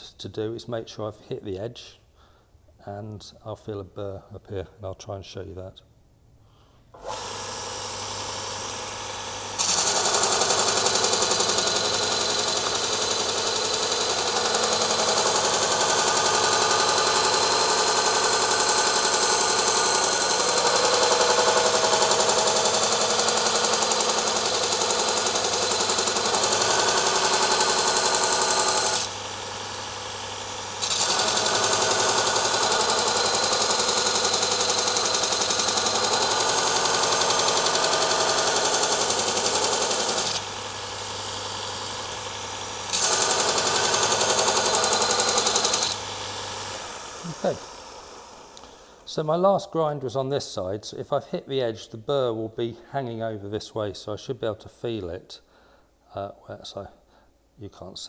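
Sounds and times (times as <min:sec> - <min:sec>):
belt grinder running: 0:07.0 - 0:49.0.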